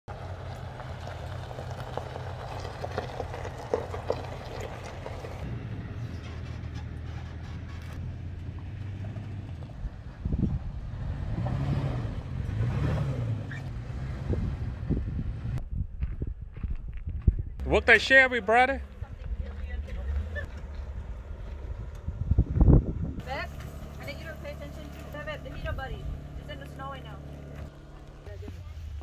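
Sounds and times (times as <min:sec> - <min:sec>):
tyres crunching on stones: 0:00.1 - 0:05.5, 0:23.2 - 0:29.0
truck engines running low: 0:00.1 - 0:15.6, 0:17.6 - 0:29.0.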